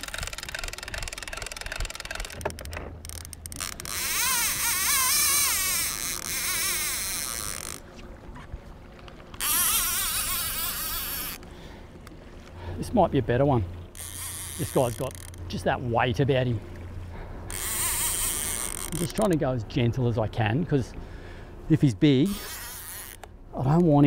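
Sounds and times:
fishing reel ratchet buzzing: 0.0 - 7.8, 9.4 - 11.4, 13.9 - 15.5, 17.5 - 19.4, 22.3 - 23.3.

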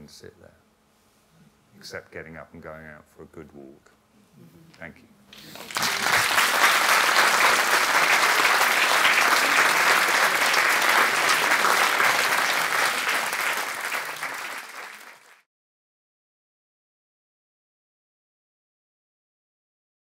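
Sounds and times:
audience applauding: 5.3 - 15.5.

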